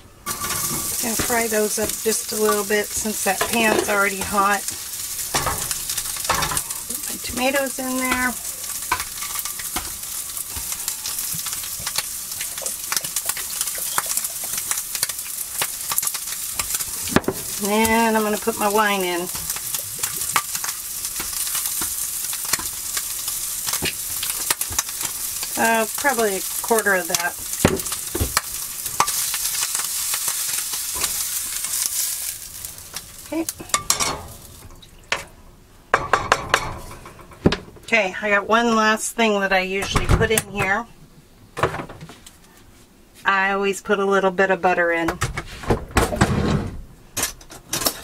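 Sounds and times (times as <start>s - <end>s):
sausage sizzling in skillet: 0.0s - 35.6s
fat crackling and popping: 0.0s - 43.8s
spatula knocking and scraping pans: 0.3s - 12.0s, 12.6s - 22.8s, 33.6s - 37.8s.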